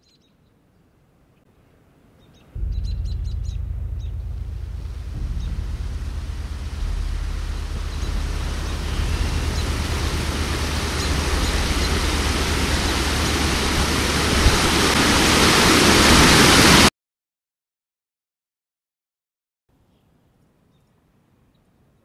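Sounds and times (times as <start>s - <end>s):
flood water rushing: 3.8s - 16.9s.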